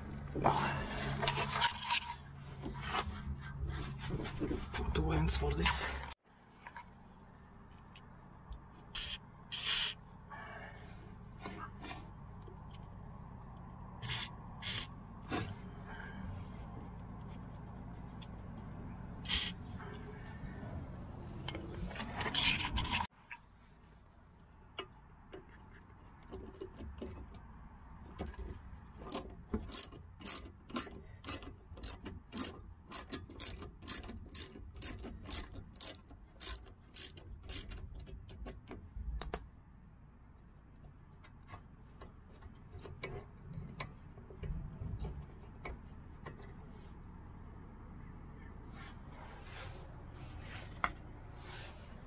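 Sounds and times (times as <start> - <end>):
socket ratchet clicking: 29.0 - 39.4.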